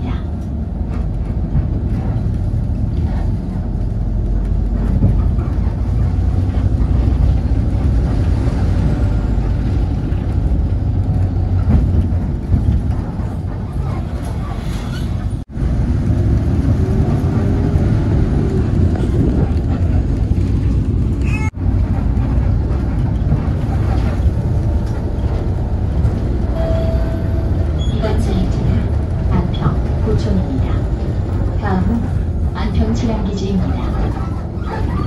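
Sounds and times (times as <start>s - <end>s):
bus engine rumble: 0.0s - 35.0s.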